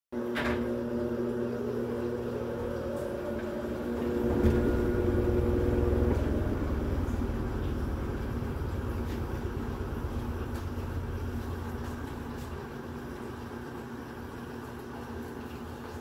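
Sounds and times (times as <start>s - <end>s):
washing machine motor hum: 0.2s - 16.0s
low rumble: 2.1s - 12.7s.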